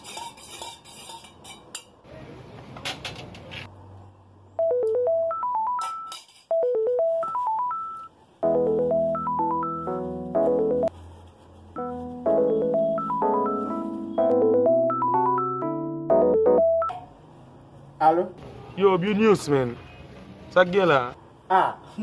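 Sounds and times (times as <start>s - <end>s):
metal spoon stirring in cup: 0.0s - 2.0s
mobile phone ringtone: 4.6s - 10.9s, 11.8s - 16.9s.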